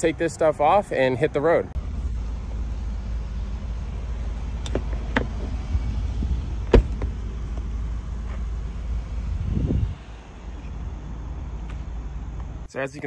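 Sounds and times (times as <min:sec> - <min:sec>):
low rumble: 0:01.8 - 0:12.7.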